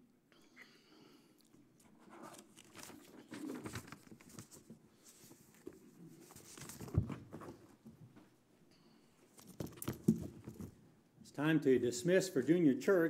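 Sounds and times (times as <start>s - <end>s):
small clicks and rustling: 1.5s - 8.3s, 9.3s - 10.8s.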